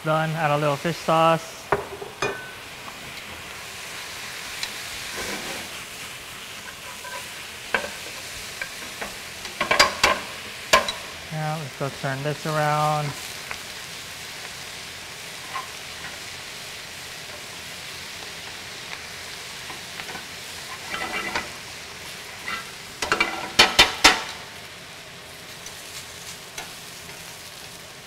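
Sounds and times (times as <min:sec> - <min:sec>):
greens sizzling in skillet: 0:00.0 - 0:28.0
tongs clanking on pan: 0:01.7 - 0:02.6, 0:06.6 - 0:11.2, 0:15.4 - 0:16.2, 0:19.6 - 0:21.6, 0:22.4 - 0:24.4, 0:26.5 - 0:27.3.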